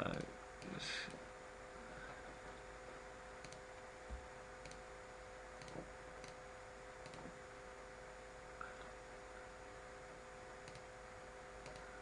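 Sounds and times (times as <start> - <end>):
computer mouse clicks: 0.0 - 1.2, 3.4 - 3.6, 4.6 - 4.9, 5.6 - 6.4, 7.0 - 7.3, 10.6 - 10.9, 11.6 - 11.9
low electrical hum: 0.0 - 12.0.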